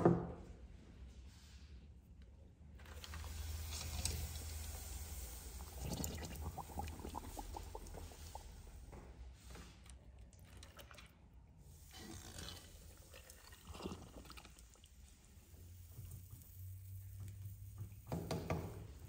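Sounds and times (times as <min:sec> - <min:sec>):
water sloshing in a pot: 0:02.7 - 0:19.0
small bubbling plops: 0:03.0 - 0:08.9, 0:12.1 - 0:18.2.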